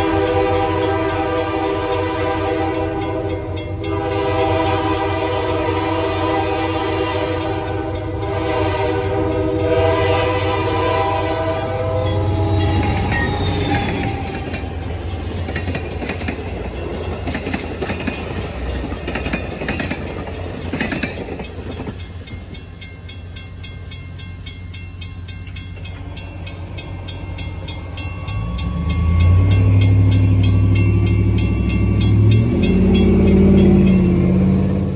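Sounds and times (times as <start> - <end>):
crossing signal bell ringing: 0.0 - 6.2, 7.0 - 34.9
locomotive horn: 0.0 - 14.8
train wheels clicking: 0.0 - 34.9.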